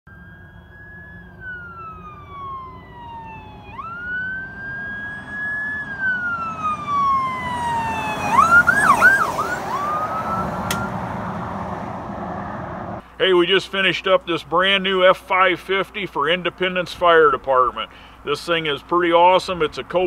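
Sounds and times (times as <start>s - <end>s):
fire truck siren wailing: 0.1s - 13.0s
truck engine: 0.1s - 14.6s
road noise: 0.1s - 20.0s.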